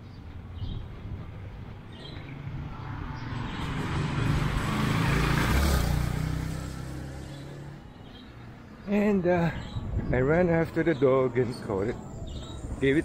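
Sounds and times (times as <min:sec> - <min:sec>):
motor tricycle passing by: 0:00.6 - 0:08.2.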